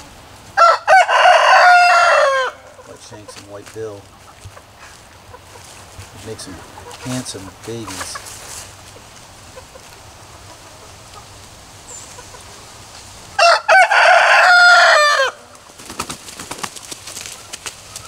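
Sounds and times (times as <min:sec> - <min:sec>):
rooster crowing: 0:00.6 - 0:02.8, 0:13.4 - 0:15.5.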